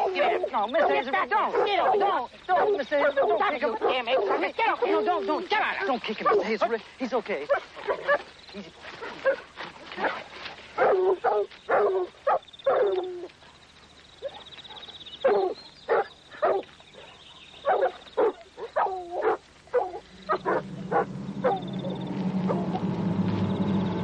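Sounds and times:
dog barking: 0:00.0 - 0:05.1, 0:06.2 - 0:06.8, 0:07.5 - 0:08.3, 0:09.0 - 0:10.2, 0:10.8 - 0:13.3, 0:14.2 - 0:22.8
low steady hum: 0:19.0 - 0:24.0.

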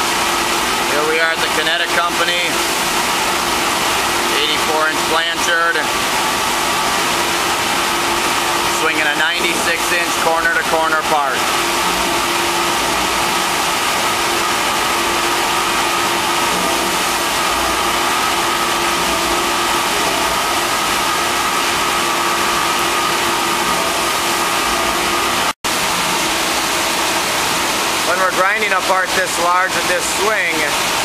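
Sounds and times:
machine hum: 0:00.0 - 0:31.0
grinder wheel grinding metal: 0:11.7 - 0:25.5.

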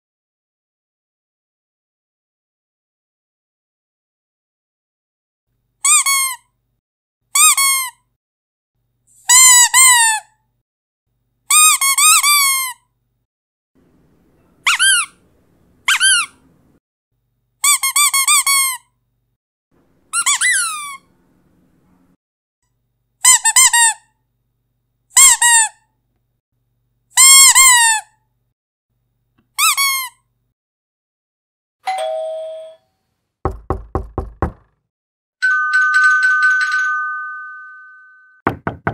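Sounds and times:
squeaky dog toy: 0:05.8 - 0:06.5, 0:07.3 - 0:08.1, 0:09.2 - 0:10.4, 0:11.5 - 0:12.9, 0:14.5 - 0:15.2, 0:15.8 - 0:16.4, 0:17.6 - 0:19.0, 0:20.1 - 0:21.1, 0:23.2 - 0:24.2, 0:25.1 - 0:25.9, 0:27.2 - 0:28.2, 0:29.6 - 0:30.3.

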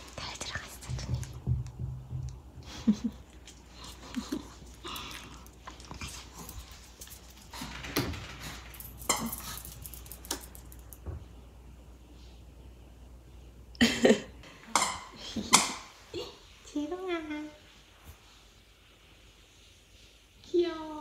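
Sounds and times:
dog claws clicking on floor: 0:03.3 - 0:11.1.

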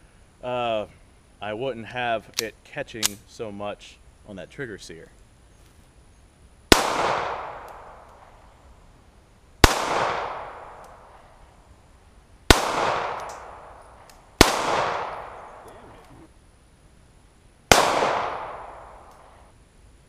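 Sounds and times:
pistol shots with rolling echo: 0:06.7 - 0:08.4, 0:09.6 - 0:11.3, 0:12.5 - 0:15.9, 0:17.7 - 0:19.4.

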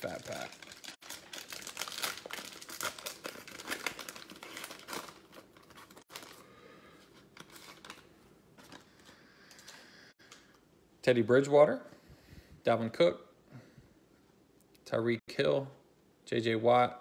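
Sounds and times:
plastic wrapper tearing and crinkling: 0:00.0 - 0:06.4, 0:07.3 - 0:08.9.

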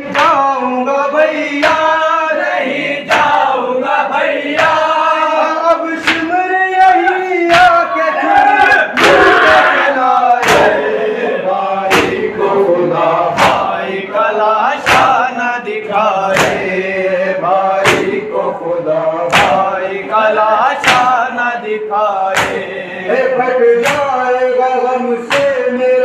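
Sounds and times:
men chanting in unison: 0:00.0 - 0:26.0
hands beating on chests: 0:14.8 - 0:15.2, 0:16.3 - 0:16.7, 0:17.8 - 0:18.2, 0:19.3 - 0:19.7, 0:20.8 - 0:21.2, 0:22.3 - 0:22.6, 0:23.8 - 0:24.2, 0:25.3 - 0:25.7.

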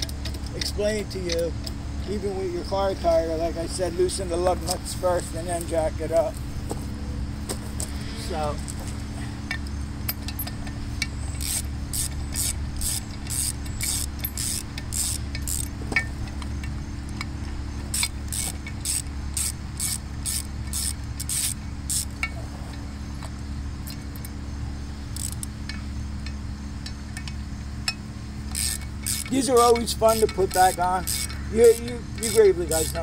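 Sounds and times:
steady low hum: 0:00.0 - 0:33.0
socket ratchet clicking: 0:09.5 - 0:17.3, 0:17.9 - 0:22.4, 0:25.2 - 0:33.0.

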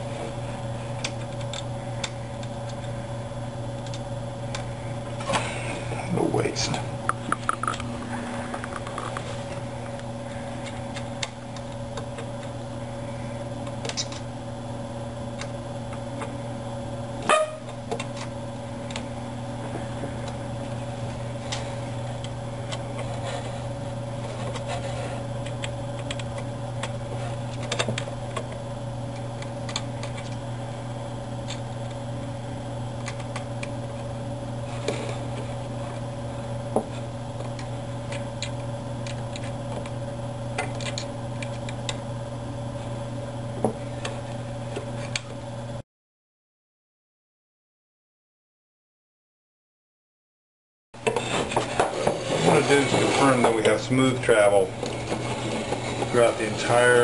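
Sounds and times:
steady low hum: 0:00.0 - 0:45.8, 0:51.0 - 0:57.0.

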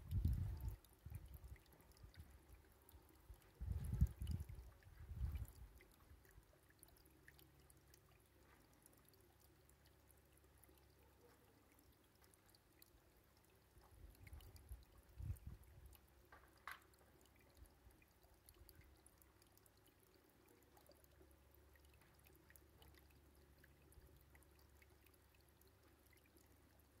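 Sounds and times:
low microphone rumbles: 0:03.6 - 0:05.5.

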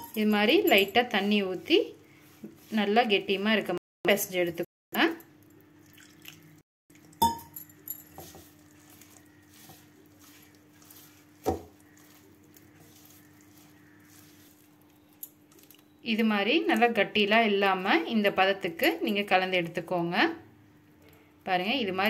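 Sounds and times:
hand mixing dough: 0:00.1 - 0:03.8, 0:07.8 - 0:19.6
clink against metal bowl: 0:07.2 - 0:08.3.

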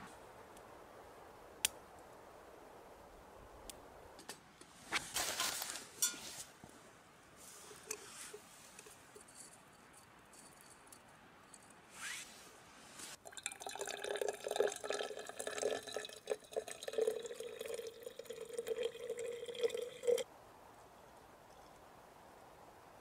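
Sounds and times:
coffee pouring into metal cup: 0:13.2 - 0:20.2.

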